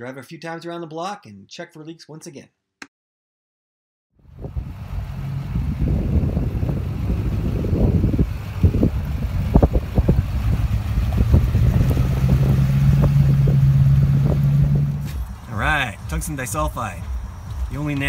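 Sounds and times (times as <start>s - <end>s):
diesel truck engine drone: 4.2s - 18.0s.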